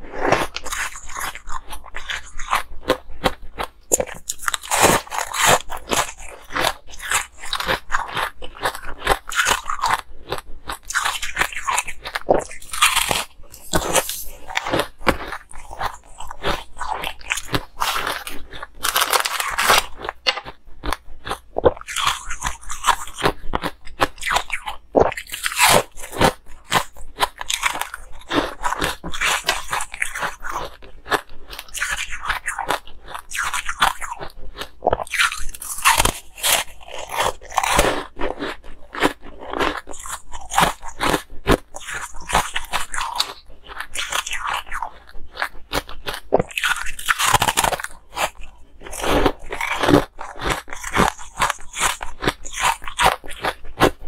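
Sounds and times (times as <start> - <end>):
chewing crunchy ice: 0.0 - 54.0.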